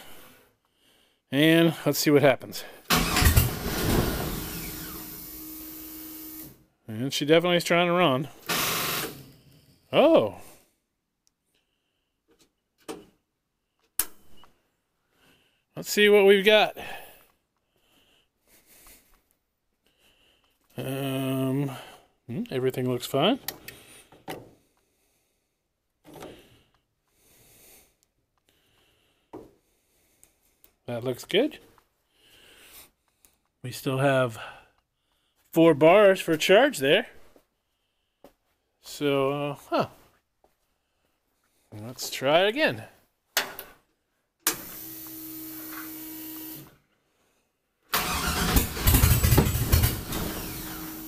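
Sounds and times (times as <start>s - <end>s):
faint breathing: 0.0s - 1.3s, 9.4s - 12.3s, 15.0s - 15.7s, 16.8s - 20.7s, 23.6s - 30.8s, 32.0s - 33.5s, 34.4s - 35.5s, 37.4s - 38.8s
starter motor cranking engine: 2.9s - 6.6s, 8.4s - 9.3s, 47.9s - 51.0s.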